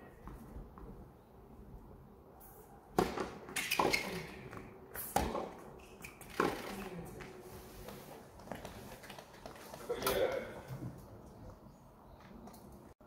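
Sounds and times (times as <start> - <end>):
tennis ball hits and bounces: 2.9 - 6.7.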